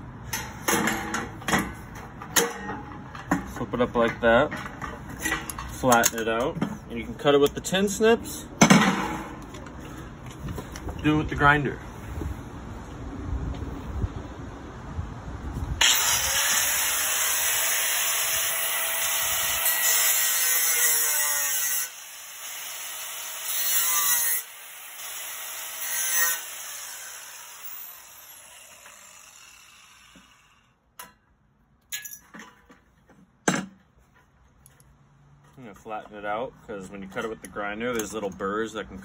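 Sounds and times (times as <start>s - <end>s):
angle grinder cutting steel: 15.8s - 30.6s.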